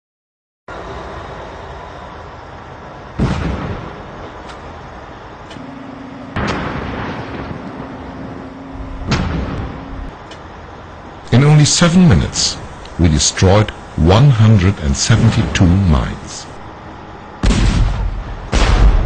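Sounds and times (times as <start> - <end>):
machine working: 4.4 - 17.8
landmine blasts: 5.6 - 10.2, 17.4 - 19.0.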